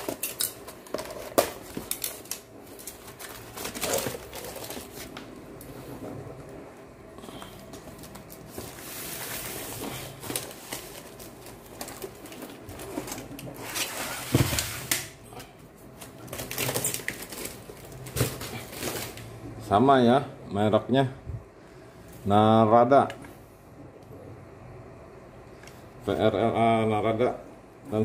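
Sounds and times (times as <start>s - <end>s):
cardboard rustling and scraping: 0.8s - 6.2s, 7.6s - 15.0s.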